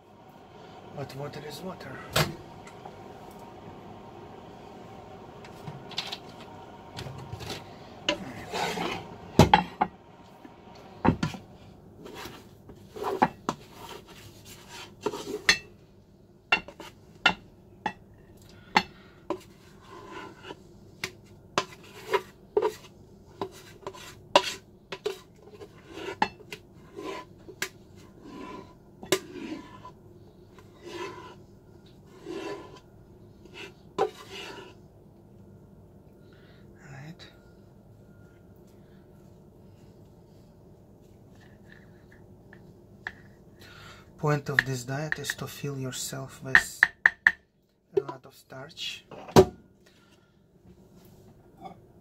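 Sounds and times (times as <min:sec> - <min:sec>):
scraping in metal pot: 0:07.3 - 0:09.9, 0:12.0 - 0:15.6, 0:19.3 - 0:20.6, 0:21.6 - 0:27.3, 0:28.0 - 0:30.0, 0:30.6 - 0:31.4, 0:32.0 - 0:34.8.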